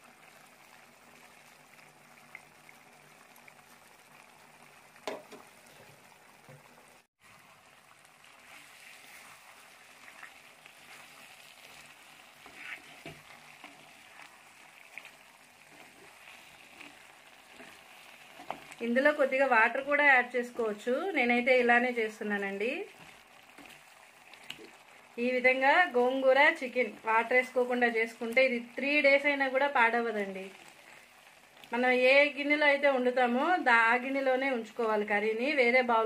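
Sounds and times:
curry simmering with crackling hiss: 0.0s - 36.0s
wooden spatula stirring pot: 8.2s - 19.8s, 20.5s - 24.9s.

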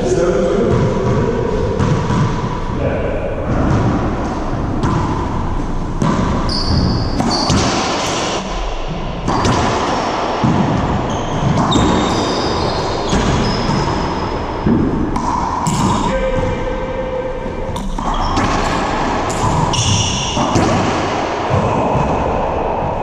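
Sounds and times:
ball smacking racquets and walls: 0.6s - 2.7s, 3.4s - 16.7s, 17.6s - 23.0s
sneakers squeaking on hardwood: 4.8s - 8.4s, 10.8s - 16.6s, 17.8s - 20.8s.

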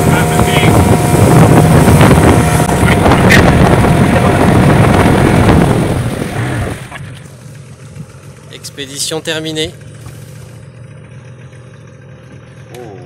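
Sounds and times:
wind buffeting microphone: 0.0s - 7.2s
outboard motor running: 0.0s - 13.0s.

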